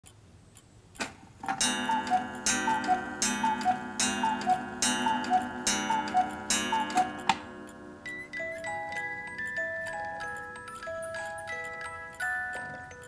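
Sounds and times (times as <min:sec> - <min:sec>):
clock strike click: 0:01.5 - 0:08.2
cuckoo clock calls: 0:01.5 - 0:13.0.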